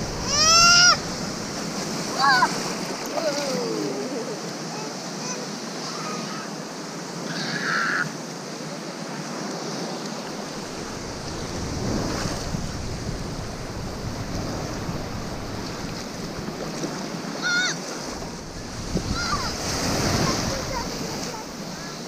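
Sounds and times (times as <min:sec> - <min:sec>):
wind rumbling on microphone: 0:00.0 - 0:04.0, 0:10.3 - 0:17.4, 0:18.0 - 0:22.0
small waves washing: 0:00.0 - 0:22.0.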